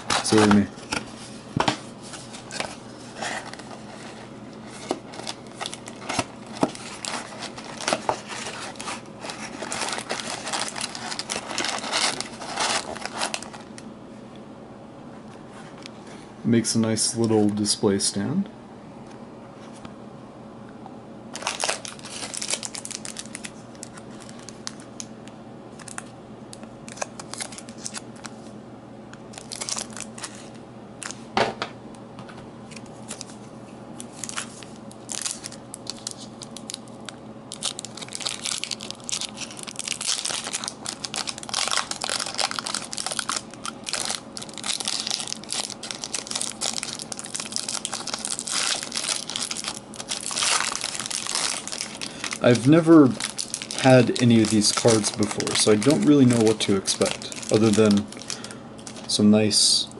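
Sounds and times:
foil wrapper crinkling: 0.0 - 1.1, 2.1 - 13.8, 21.3 - 25.1, 25.8 - 28.3, 29.3 - 31.2, 34.0 - 59.2.

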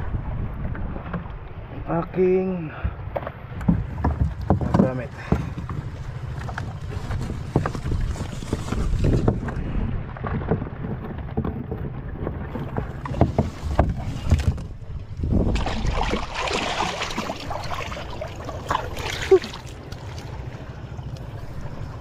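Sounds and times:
low rumble: 0.0 - 2.2
water splashing and sloshing: 0.0 - 22.0
knocks and bumps: 3.1 - 5.9.

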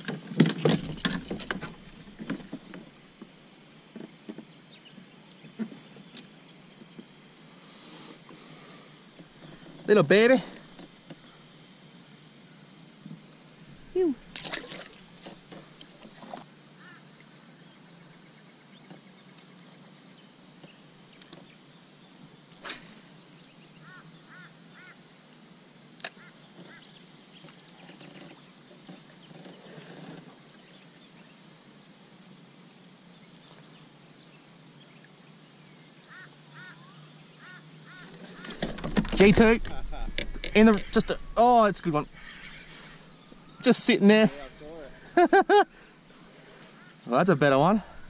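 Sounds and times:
faint bird calls: 7.9 - 11.6, 16.8 - 19.0, 22.6 - 25.1, 26.0 - 30.9, 35.9 - 48.0.

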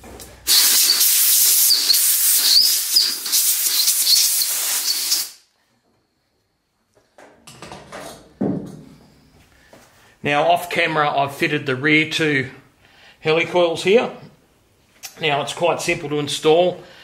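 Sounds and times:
compressed air blow gun hissing: 0.4 - 5.5.

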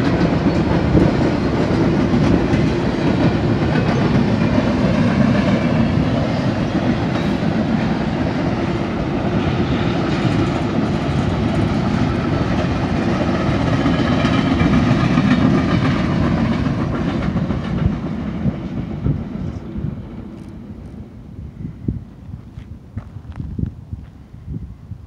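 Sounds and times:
freight train wheels on rail: 0.0 - 25.0.

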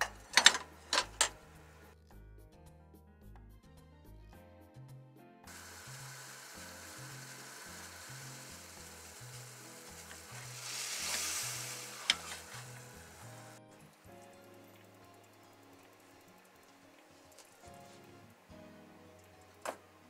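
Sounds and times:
liquid boiling with bubbling hiss: 5.5 - 18.4.

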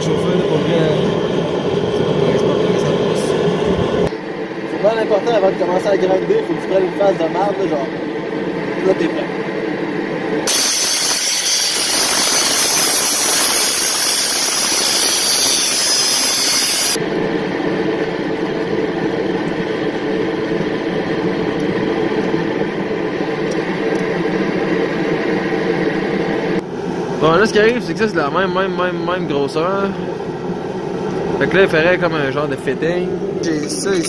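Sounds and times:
angle grinder grinding metal: 10.5 - 17.0, 33.4 - 34.0.

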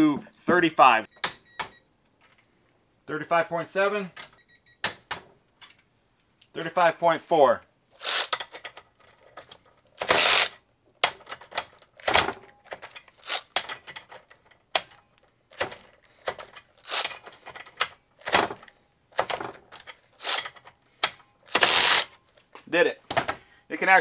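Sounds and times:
cordless ratchet bursts: 8.0 - 8.6, 10.0 - 10.6, 13.2 - 13.6, 16.2 - 17.2, 20.2 - 20.6, 21.5 - 22.1.

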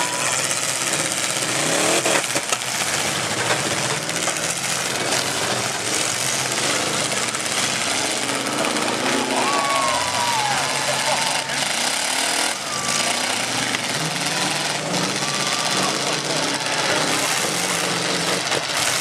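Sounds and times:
car engines revving: 0.0 - 19.0.

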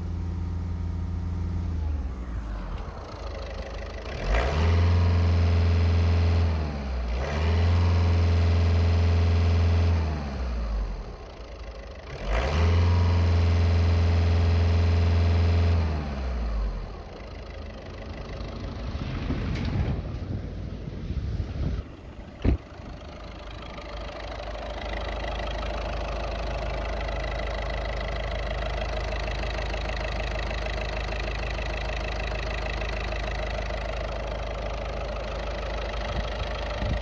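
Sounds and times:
diesel car engine revving: 0.0 - 37.0.

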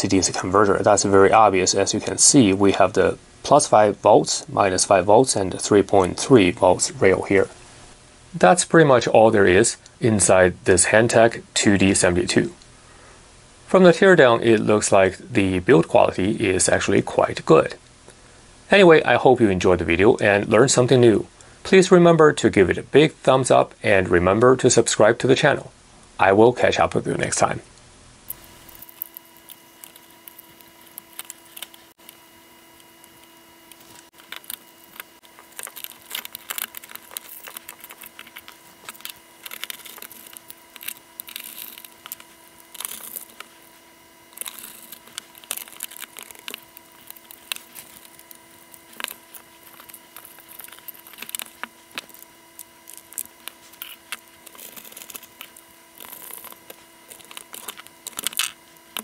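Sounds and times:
plastic parts clicking and scraping: 28.3 - 32.2, 32.8 - 59.0.

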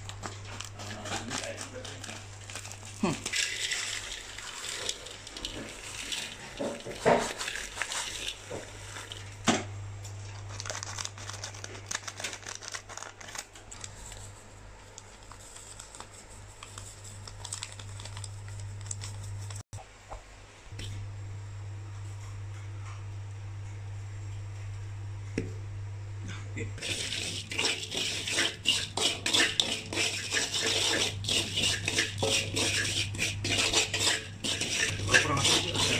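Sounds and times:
plastic sachets crinkling: 0.0 - 9.4, 10.2 - 19.6
steady low hum: 13.7 - 35.9.

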